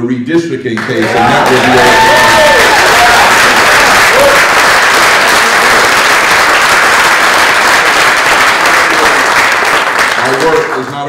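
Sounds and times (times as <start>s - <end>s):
audience applauding: 0.8s - 11.0s.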